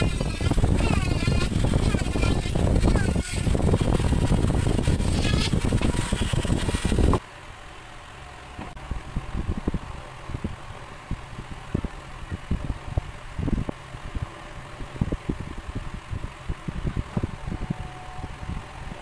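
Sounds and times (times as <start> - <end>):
rotary tool cutting plastic pipe: 0.0 - 7.2.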